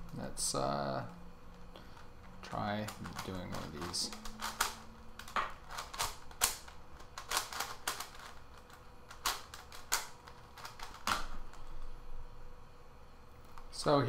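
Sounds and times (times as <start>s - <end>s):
puzzle cube plastic clicks: 2.8s - 11.6s.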